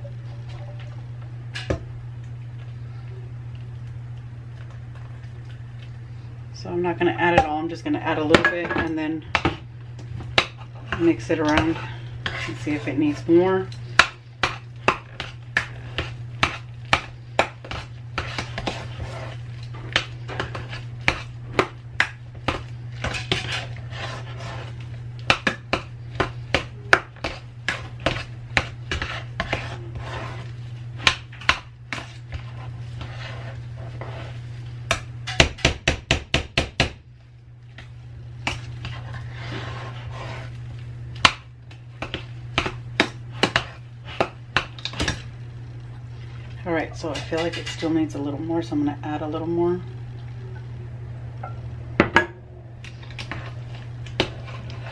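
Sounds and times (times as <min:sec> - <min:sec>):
steady low hum: 0:00.0 - 0:54.9
utensil mashing potatoes in pot: 0:10.2 - 0:36.8, 0:52.9 - 0:54.9.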